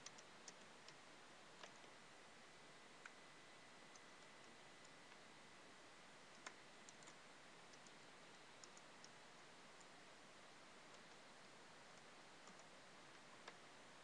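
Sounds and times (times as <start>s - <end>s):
low steady hiss: 0.0s - 14.0s.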